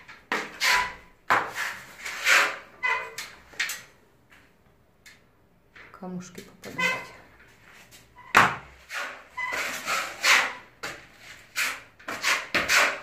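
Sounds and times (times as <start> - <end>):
trowel scraping putty on wall: 0.0 - 3.8, 8.8 - 13.0.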